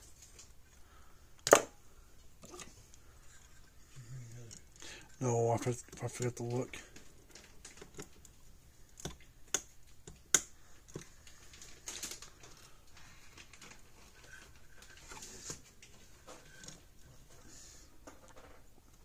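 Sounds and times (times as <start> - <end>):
clicks and taps of handling wires: 5.6 - 16.8.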